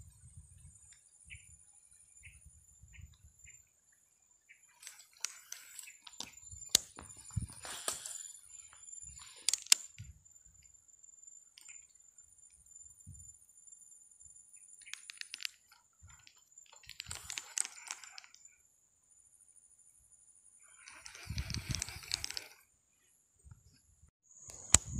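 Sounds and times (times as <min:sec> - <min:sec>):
fishing reel clicking: 0:04.8 - 0:07.0, 0:09.2 - 0:10.0, 0:14.8 - 0:18.4, 0:20.6 - 0:22.6.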